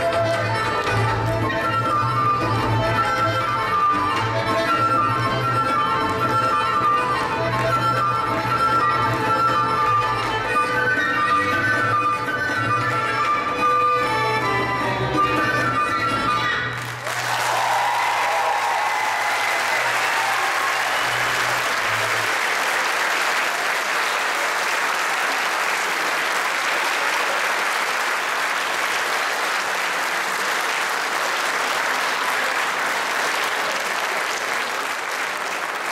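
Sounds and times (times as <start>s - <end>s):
band playing: 0.0s - 16.9s
large audience applauding: 16.7s - 35.9s.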